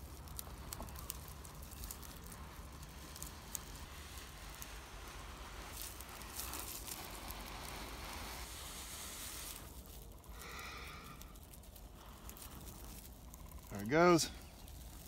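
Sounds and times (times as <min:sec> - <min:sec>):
breath blowing on tinder: 0:02.3 - 0:13.1.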